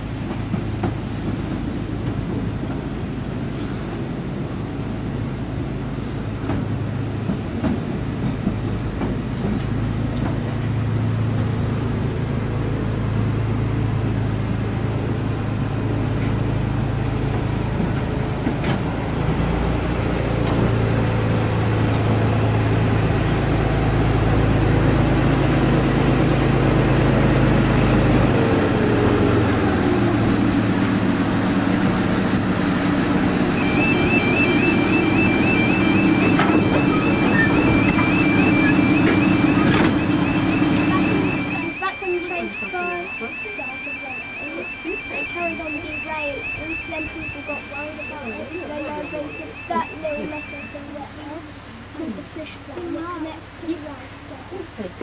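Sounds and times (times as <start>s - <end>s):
train coaches rumbling past: 0.0s - 55.0s
short falling squeal: 33.6s - 41.6s.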